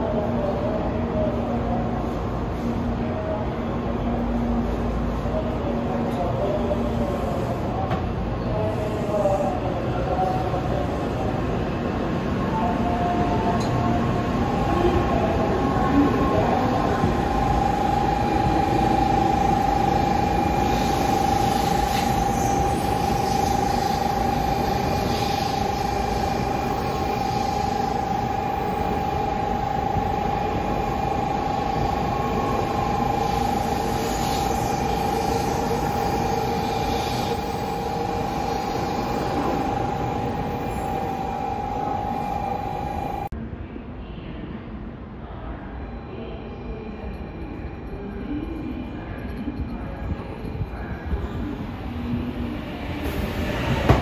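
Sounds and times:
train running noise: 0.0s - 43.4s, 44.9s - 54.0s
high electric whine: 17.2s - 43.3s.

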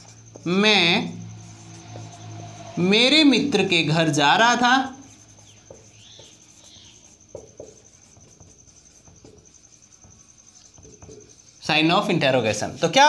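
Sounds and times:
marker tapping and clicking: 0.0s - 0.7s, 5.1s - 11.6s
marker squeaking on whiteboard: 0.0s - 13.0s.

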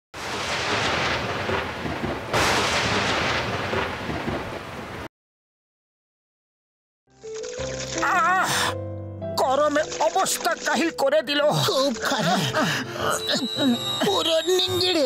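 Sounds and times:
rumbling thunderclap: 0.2s - 5.1s.

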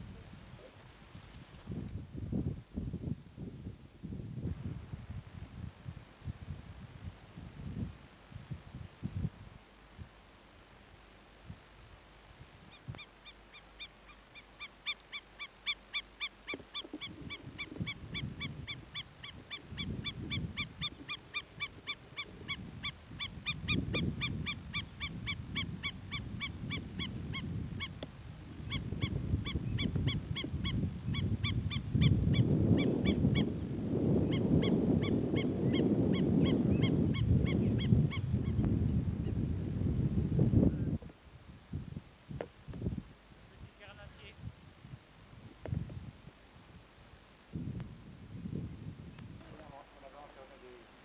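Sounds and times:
bird alarm call: 12.7s - 28.0s.

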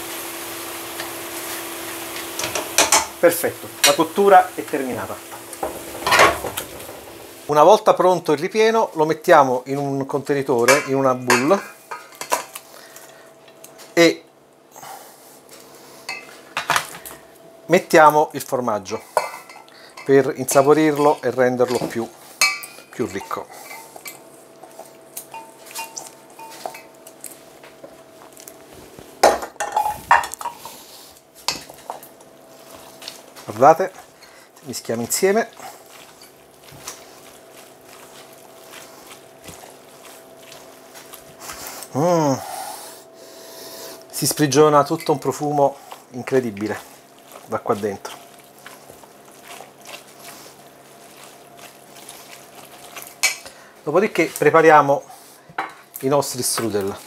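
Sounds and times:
metal bowls clinking: 2.1s - 4.1s, 19.1s - 24.2s, 25.2s - 27.2s, 29.3s - 30.7s
spatula stirring wet filling: 17.9s - 27.6s, 30.4s - 57.0s.

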